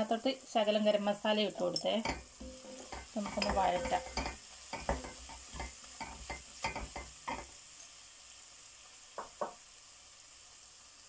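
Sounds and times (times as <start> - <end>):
sauce sizzling in oil: 0.0 - 11.0
spatula scraping a pot: 2.1 - 7.5.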